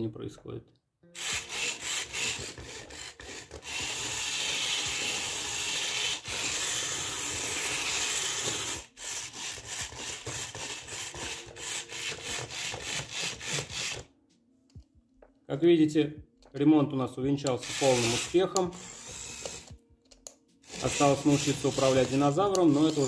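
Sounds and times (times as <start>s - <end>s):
toy motors and gears whirring: 1.2s - 14.1s, 17.5s - 19.8s, 20.6s - 23.0s.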